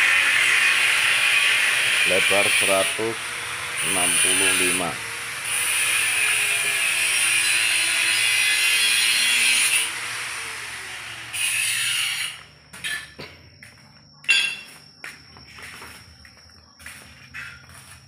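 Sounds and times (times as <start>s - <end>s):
power tool whirring: 0.0s - 12.5s.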